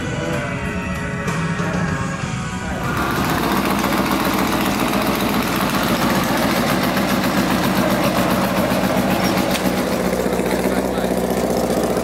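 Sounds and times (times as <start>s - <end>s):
racing car engine idling: 2.5s - 12.0s.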